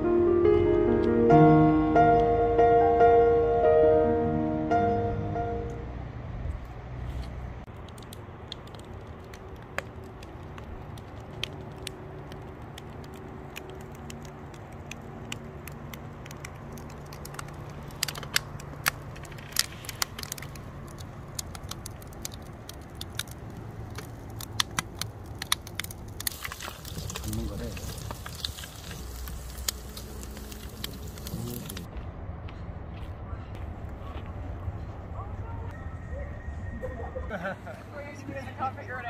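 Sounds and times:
sharp clicks and crackles: 0:07.2 - 0:31.9.

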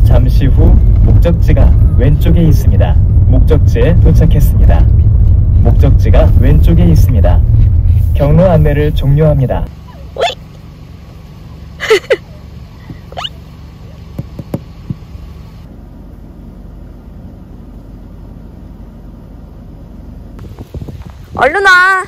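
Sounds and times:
car engine idling: 0:00.0 - 0:22.0
short high-pitched squeaks: 0:09.9 - 0:10.4, 0:13.1 - 0:13.4.

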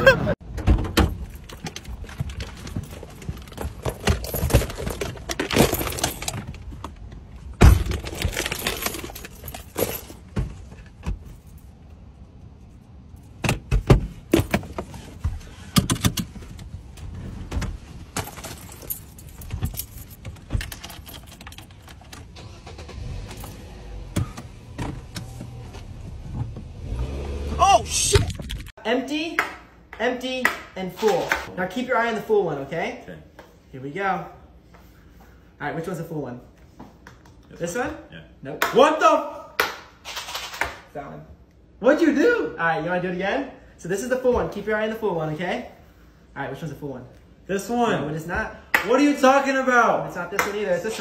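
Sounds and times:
handling noises in car cabin: 0:00.4 - 0:11.9, 0:12.6 - 0:27.0.

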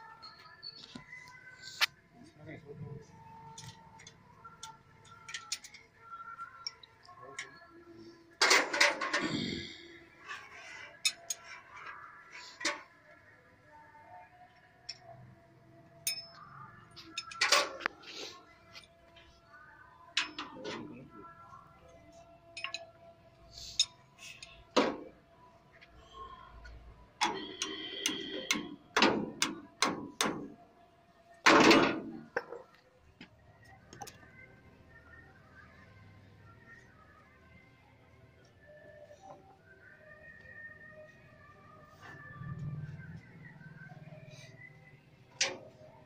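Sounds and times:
metal tool clinking on metal: 0:16.0 - 0:16.4
light metal clinks: 0:16.0 - 0:17.4.

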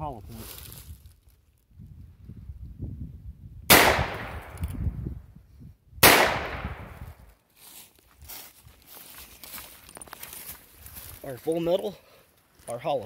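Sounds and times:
revolver shots echoing: 0:03.7 - 0:04.6, 0:06.0 - 0:07.0.

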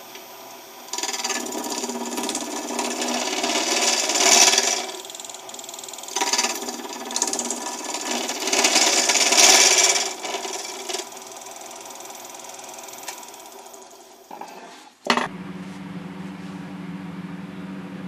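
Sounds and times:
lathe humming: 0:00.8 - 0:14.6
turning tool scraping wood: 0:00.9 - 0:13.7, 0:14.3 - 0:15.1.

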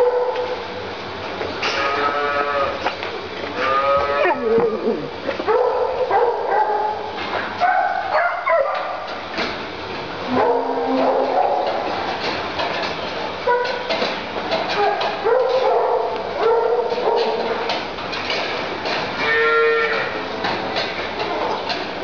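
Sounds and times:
farm animals bleating: 0:01.6 - 0:02.9, 0:03.5 - 0:05.0, 0:19.2 - 0:20.2.

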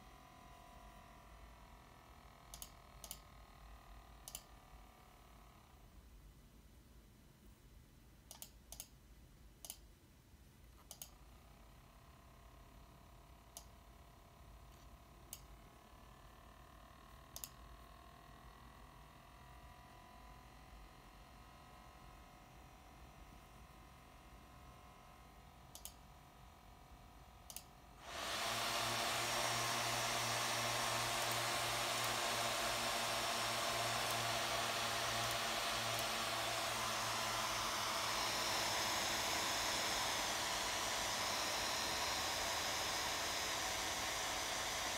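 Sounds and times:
faint sharp clicks: 0:02.5 - 0:03.2, 0:04.2 - 0:04.5, 0:08.3 - 0:09.0, 0:09.6 - 0:09.9, 0:10.8 - 0:11.2, 0:17.3 - 0:17.6, 0:25.7 - 0:26.0, 0:27.5 - 0:27.7
laptop cooling fans whining: 0:11.0 - 0:44.9
laptop fans rushing: 0:28.0 - 0:44.9.

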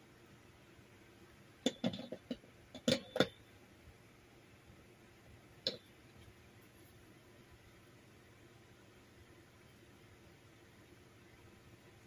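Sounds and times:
hard parts clicking and knocking: 0:01.6 - 0:03.4.

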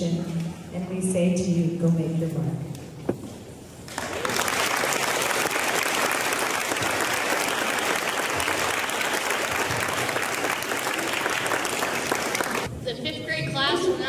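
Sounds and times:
audience applauding: 0:03.9 - 0:12.7.

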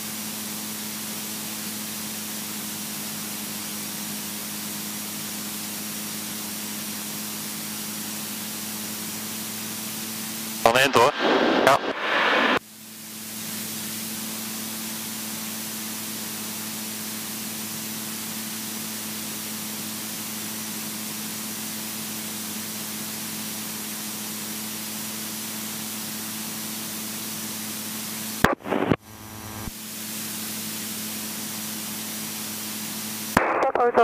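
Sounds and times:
intercom hiss: 0:10.4 - 0:14.8, 0:33.1 - 0:34.0
microphone click and burst: 0:28.4 - 0:29.7.

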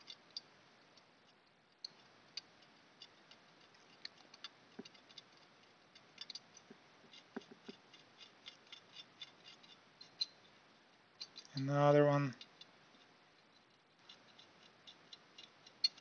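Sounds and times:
tool tip scraping circuit board: 0:03.0 - 0:10.4.

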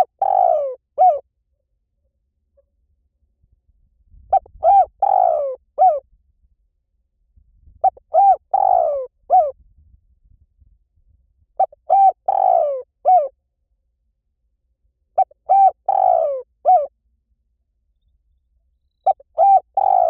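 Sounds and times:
dove cooing: 0:00.0 - 0:01.2, 0:04.3 - 0:06.0, 0:07.8 - 0:09.6, 0:11.6 - 0:13.3, 0:15.2 - 0:16.9, 0:19.0 - 0:20.0.

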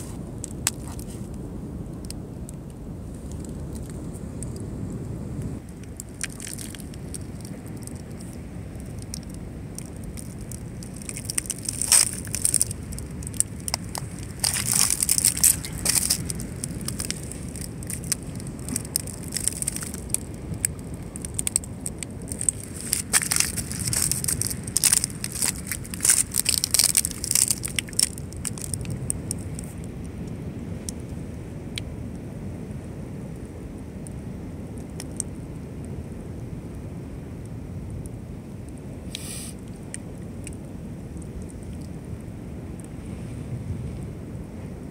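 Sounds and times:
crunching crackles: 0:00.0 - 0:01.4, 0:02.0 - 0:29.9
low rumble: 0:00.0 - 0:34.2.

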